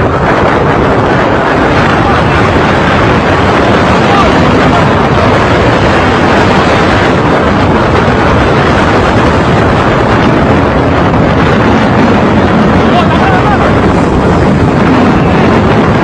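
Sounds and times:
road noise: 0.0 - 16.0
wind buffeting microphone: 0.0 - 16.0.

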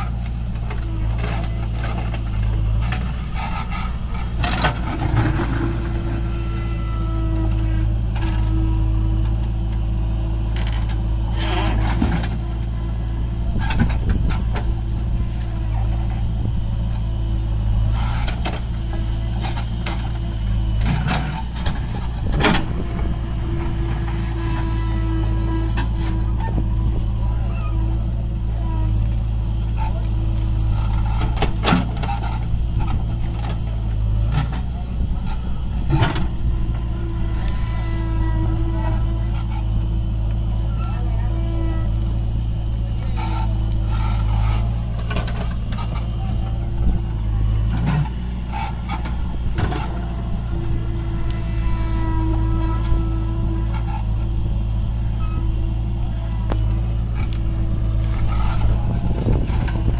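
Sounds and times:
bucket scraping and clattering soil: 0.0 - 7.5
diesel engines running: 0.0 - 59.9.

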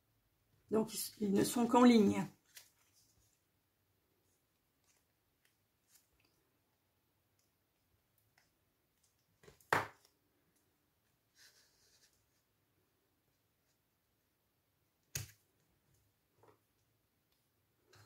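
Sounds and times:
paper rustling: 2.4 - 3.6.

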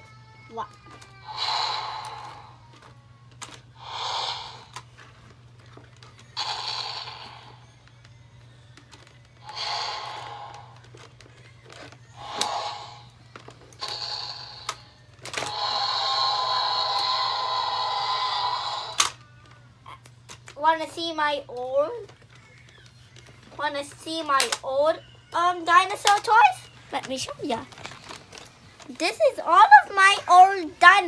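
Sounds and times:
electronic toy roar: 1.2 - 2.9, 3.8 - 5.0, 6.4 - 7.8, 9.4 - 10.9, 12.2 - 13.2, 13.8 - 19.2
plastic toy mechanism clicks: 18.9 - 19.6, 24.2 - 24.7, 26.0 - 26.3.

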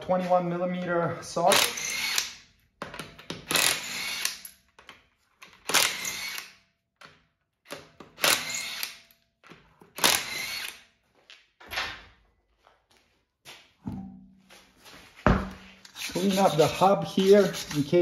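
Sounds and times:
impact wrench bursts: 1.5 - 2.4, 3.2 - 4.6, 5.6 - 6.6, 7.7 - 9.0, 10.0 - 10.8.

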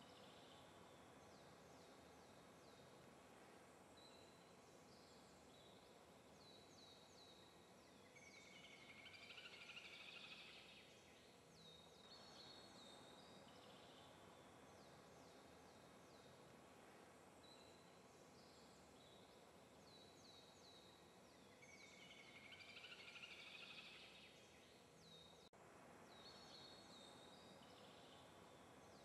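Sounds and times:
faint background hiss: 0.0 - 29.0.

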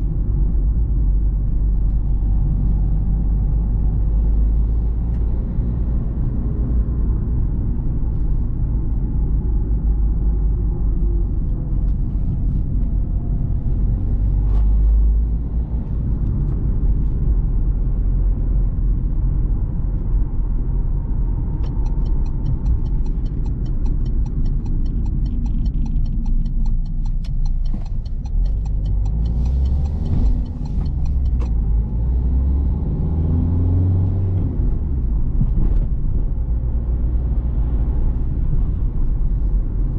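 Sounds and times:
diesel engine rumble in cabin: 0.0 - 39.9
turn indicator ticking: 21.5 - 32.0.

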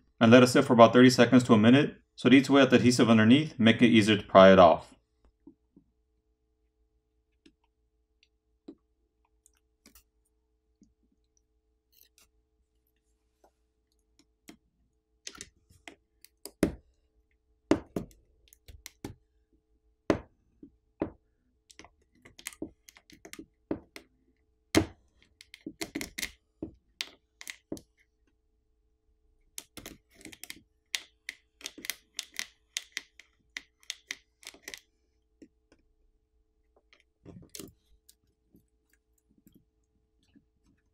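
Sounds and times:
hand tools clicking on phone: 21.7 - 24.1, 24.8 - 27.9, 29.5 - 35.8.

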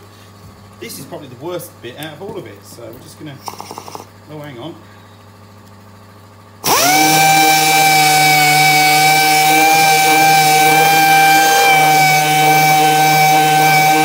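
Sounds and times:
air sander high whine: 6.6 - 14.0.

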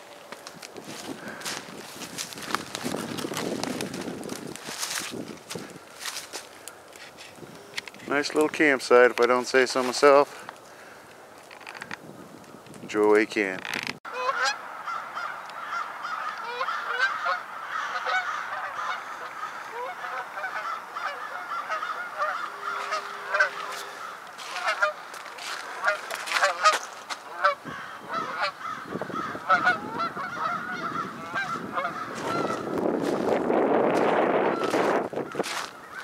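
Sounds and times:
geese honking: 14.1 - 33.4, 34.4 - 36.0.

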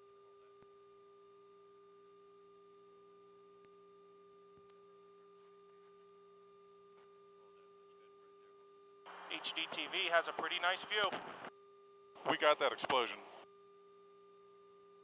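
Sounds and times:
faint two-tone hum: 0.0 - 15.0
faint hiss: 9.1 - 11.5.

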